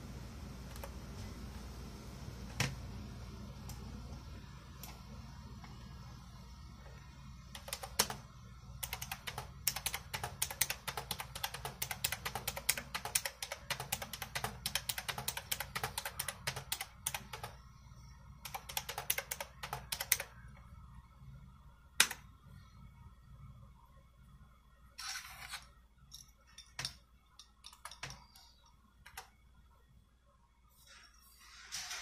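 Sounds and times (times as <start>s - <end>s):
computer keyboard typing: 7.5s - 17.6s, 18.4s - 20.4s, 27.6s - 29.4s.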